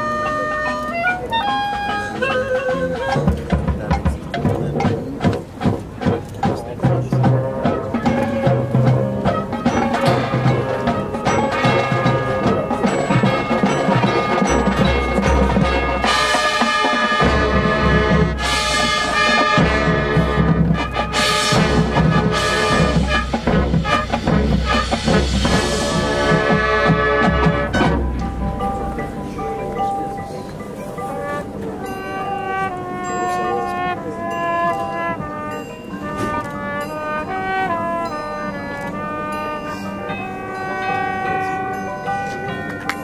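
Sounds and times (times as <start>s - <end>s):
marching band playing: 0.0s - 43.0s
deep bass part: 21.5s - 30.3s.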